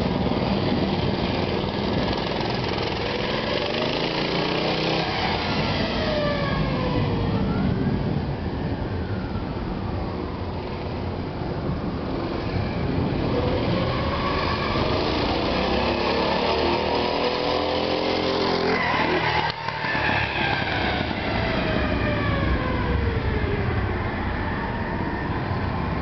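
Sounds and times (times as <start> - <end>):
mini bike engine passing by: 0.0 - 7.1, 12.1 - 22.0.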